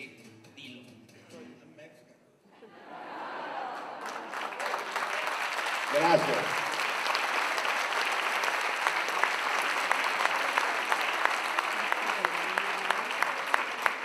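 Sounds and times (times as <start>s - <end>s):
audience applauding: 3.2s - 14.0s.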